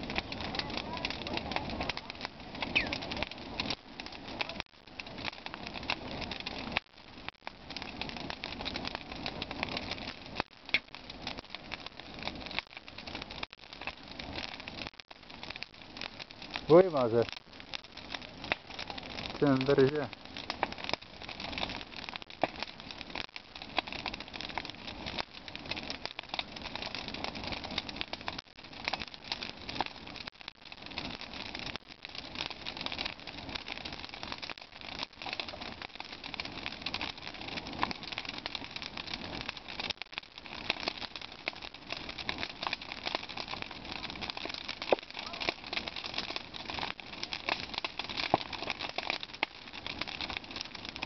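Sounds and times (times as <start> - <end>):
fire crackles and pops: 0.0 - 51.0
rush of flames: 0.0 - 51.0.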